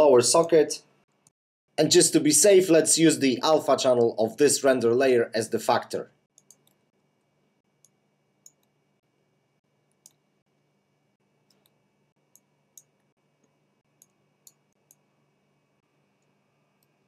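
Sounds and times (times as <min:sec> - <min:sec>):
faint computer mouse clicks: 0:06.4 - 0:06.8.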